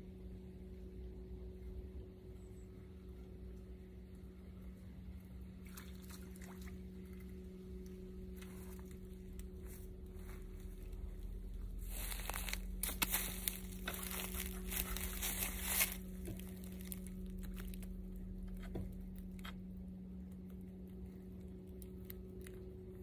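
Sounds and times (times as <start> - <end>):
steady low hum: 0.0 - 23.0
crinkly rustling and crunching: 7.4 - 23.0.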